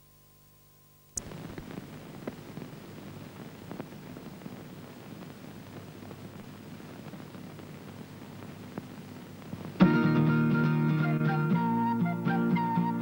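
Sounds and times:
film soundtrack hiss and crackle: 0:00.0 - 0:13.0
small pops: 0:01.1 - 0:09.8.

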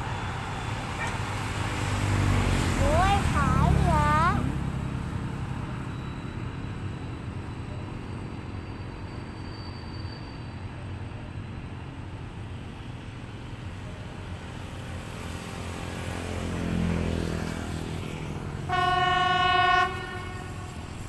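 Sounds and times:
freight train rumbling past: 0:00.0 - 0:21.0
train horn blast: 0:18.6 - 0:21.0.

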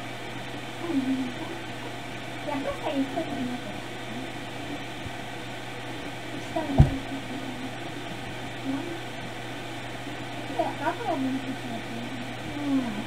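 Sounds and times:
low electrical hum: 0:00.0 - 0:13.0
dull thump: 0:06.7 - 0:07.1.

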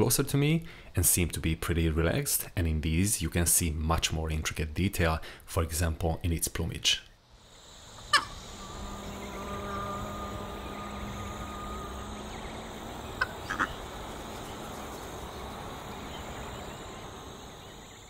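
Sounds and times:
outdoor nature ambience: 0:00.0 - 0:18.0
animal calls: 0:08.0 - 0:18.0.

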